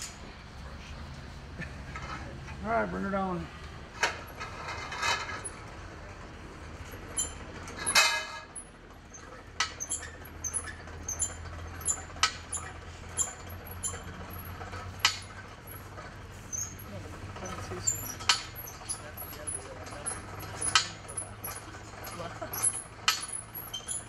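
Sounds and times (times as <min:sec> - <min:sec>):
metallic clicks and clanks: 0:03.9 - 0:24.0.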